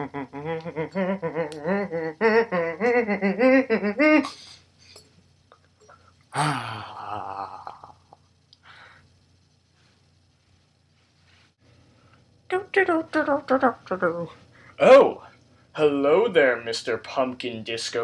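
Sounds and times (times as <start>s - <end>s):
man crying out: 0.0s - 4.3s
man warbling vocal noise: 0.0s - 4.4s, 6.3s - 8.2s.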